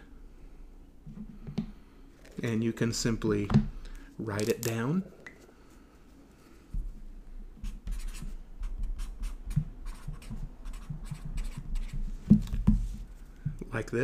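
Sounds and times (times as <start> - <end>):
pen scratching on paper: 7.6 - 8.3, 8.9 - 12.0.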